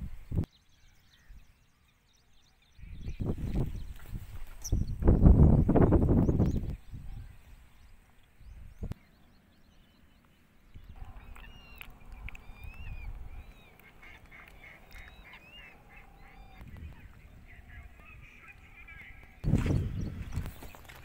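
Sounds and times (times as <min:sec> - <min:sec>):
birds calling: 0:00.0 - 0:21.0.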